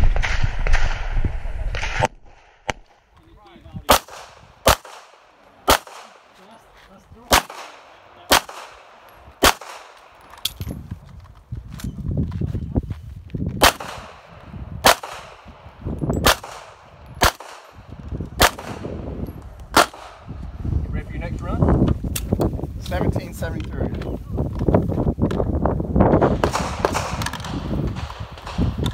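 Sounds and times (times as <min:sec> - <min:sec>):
handgun shots: 0:03.9 - 0:06.3, 0:07.3 - 0:10.6, 0:13.6 - 0:14.2, 0:14.8 - 0:15.5, 0:16.2 - 0:17.8.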